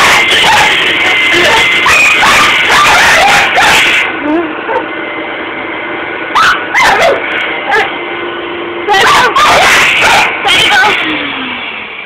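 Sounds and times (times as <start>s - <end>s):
vacuum cleaner motor: 0.0s - 12.0s
dog barking and yipping: 1.8s - 4.1s, 6.4s - 7.9s, 8.9s - 10.9s.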